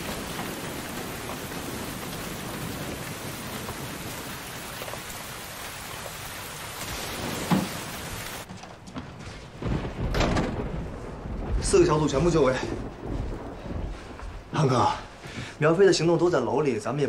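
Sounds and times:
heavy rain on street: 0:00.0 - 0:08.5.

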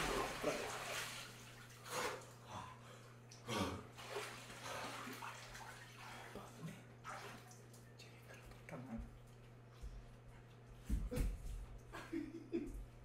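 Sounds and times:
water sloshing and splashing: 0:00.0 - 0:02.4, 0:03.2 - 0:09.5
faint low hum: 0:00.0 - 0:13.0.

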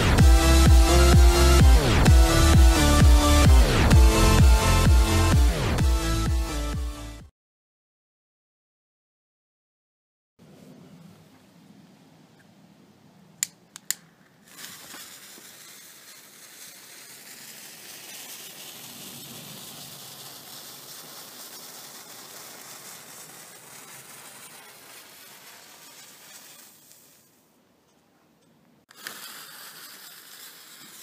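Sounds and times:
sparkler fuse hissing: 0:00.0 - 0:06.7, 0:14.4 - 0:27.4, 0:28.9 - 0:31.0.

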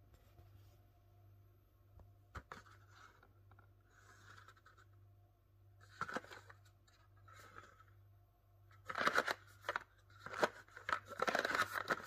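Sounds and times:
cardboard sleeve handling: 0:08.9 - 0:12.0.

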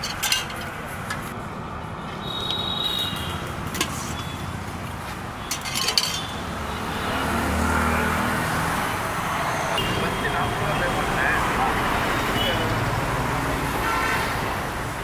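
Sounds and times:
steel ladle clinking on pots: 0:00.0 - 0:00.7, 0:05.4 - 0:06.4
road traffic: 0:00.0 - 0:15.0
vehicle engine: 0:03.4 - 0:15.0.

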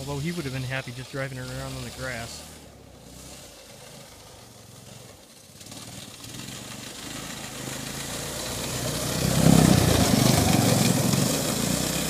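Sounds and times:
snowmobile engine running: 0:00.0 - 0:12.0.

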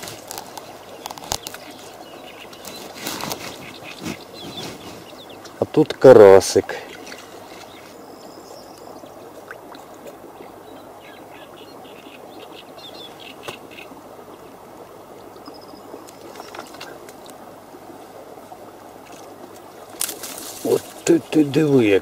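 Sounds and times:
faint bird chirps: 0:15.3 - 0:17.0.

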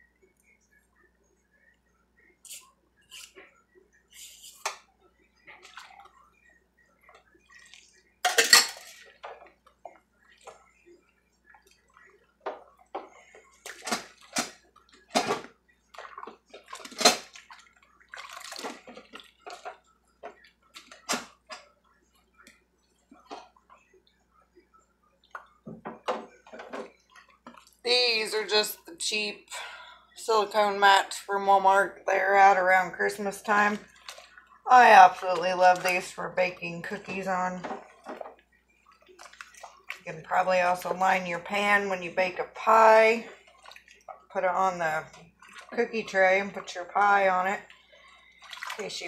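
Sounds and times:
water splashing in sink: 0:05.4 - 0:06.4, 0:07.0 - 0:21.8, 0:32.4 - 0:49.0
dishes and utensils clinking: 0:08.2 - 0:09.4.

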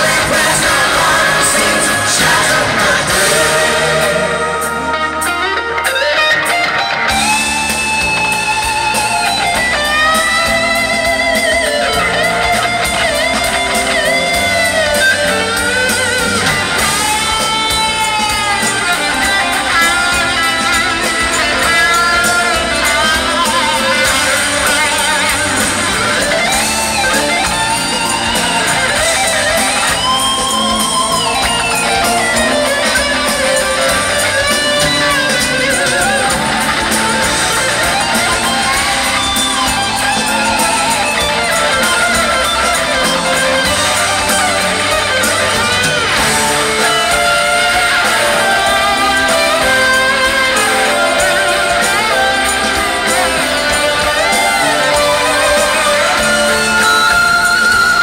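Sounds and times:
electric guitar bending notes: 0:00.0 - 0:58.0
live rock band playing: 0:00.0 - 0:58.0.

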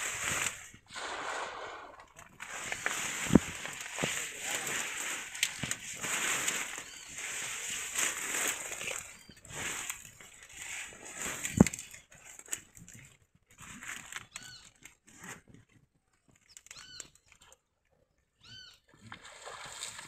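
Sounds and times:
net rustling: 0:00.0 - 0:15.4.

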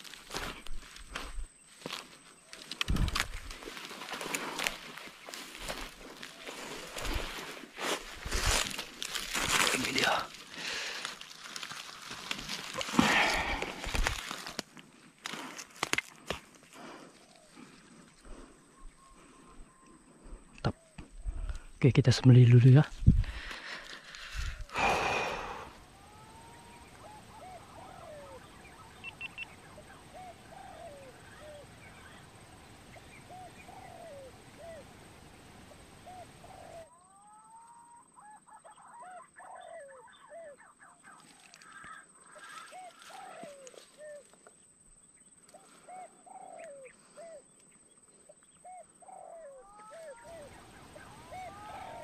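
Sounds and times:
pigeons whistled calls: 0:26.0 - 0:32.1, 0:48.6 - 0:52.0.

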